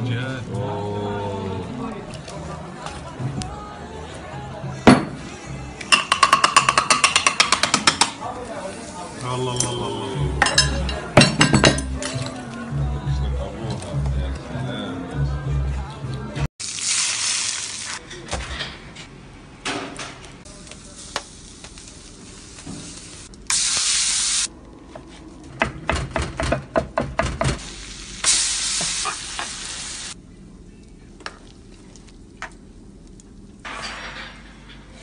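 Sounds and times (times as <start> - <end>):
kitchen clatter: 5.9 - 8.3, 10.4 - 12.5, 33.6 - 35.0
hot food sizzling: 16.6 - 18.0, 20.4 - 24.5, 27.6 - 30.2.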